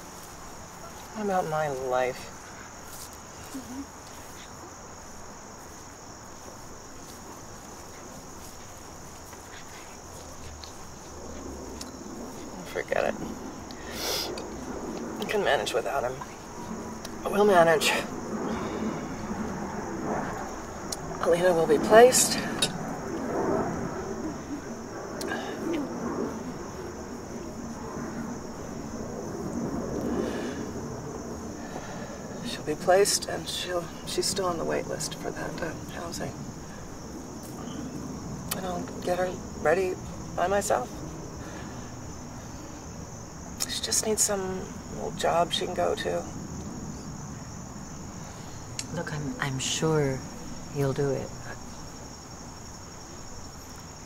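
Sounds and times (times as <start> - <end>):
faint outdoor air hiss: 0.0 - 54.0
insects trilling: 0.0 - 54.0
low background rumble: 4.6 - 54.0.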